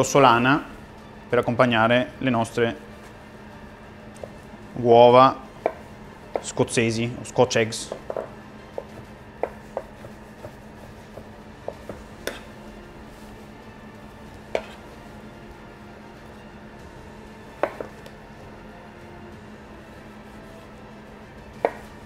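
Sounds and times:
knife tapping cutting board: 5.6 - 6.6, 7.9 - 10.6, 11.2 - 12.5, 14.5 - 14.8, 17.6 - 18.1, 21.6 - 21.9.

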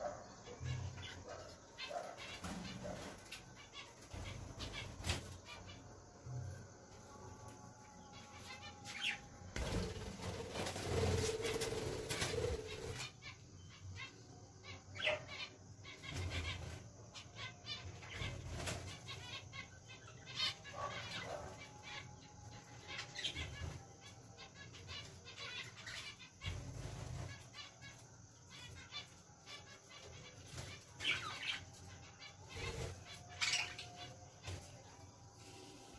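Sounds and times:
budgerigars fluttering wings: 9.0 - 13.1.

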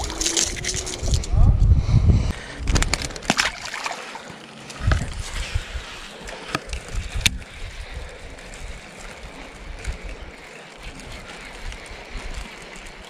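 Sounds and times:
fish splashing into water: 2.7 - 4.4.

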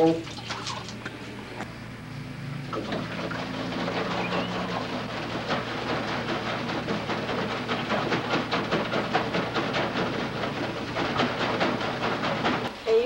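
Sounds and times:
plastic container rattling: 2.8 - 12.7.

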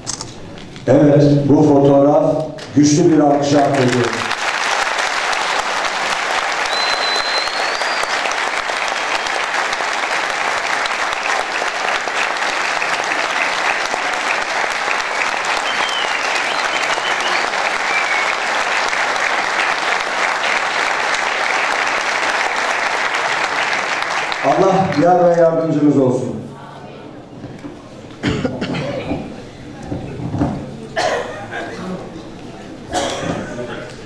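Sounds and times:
audience applauding: 2.6 - 25.4.

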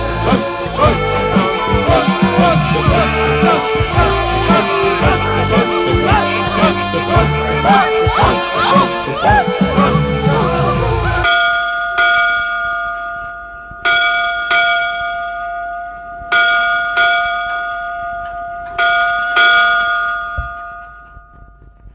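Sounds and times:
band music: 0.0 - 11.3
bell ringing ding-dong: 11.3 - 21.6.

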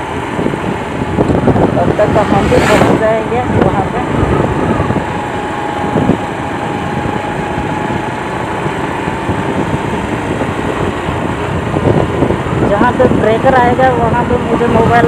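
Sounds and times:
motorcycle engine cruising: 0.0 - 15.0
road noise rushing: 0.0 - 15.0.

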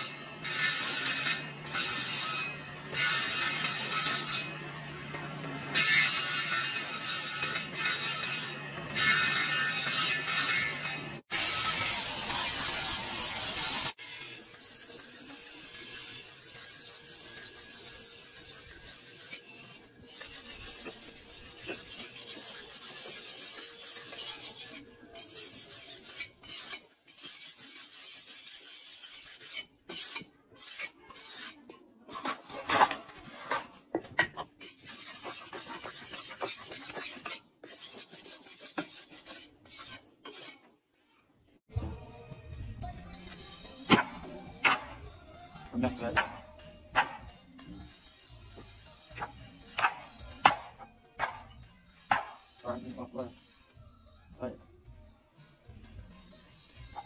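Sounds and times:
spinning disc grinding blade: 0.0 - 31.5
knife scraping on whetstone: 5.7 - 40.7, 46.2 - 53.8.

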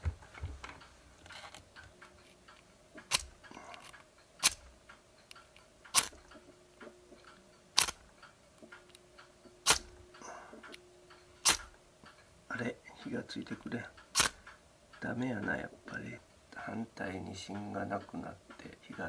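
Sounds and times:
match rod striking flint: 3.0 - 4.7, 5.9 - 6.2, 7.8 - 8.0, 9.6 - 10.0, 11.4 - 11.8, 14.1 - 14.4.

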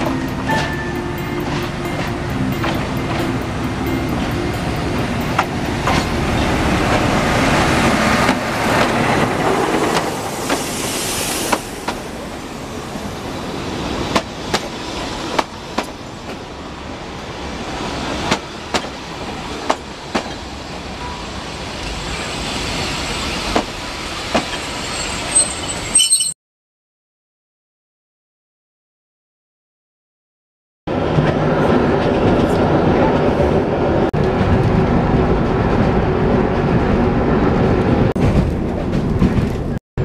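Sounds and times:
diesel locomotive passing: 0.0 - 26.0, 30.9 - 39.8
train wheels clacking on rail joints: 1.4 - 10.7.

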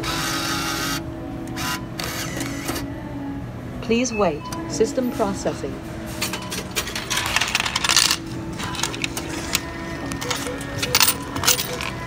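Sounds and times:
coins clinking: 6.1 - 12.0
coins clattering into cup: 6.2 - 12.0.

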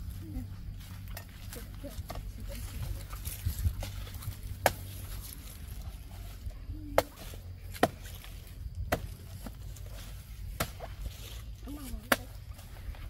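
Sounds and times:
knife chopping plant trunk: 4.5 - 5.1, 6.9 - 8.3, 8.9 - 9.6, 10.5 - 11.2.

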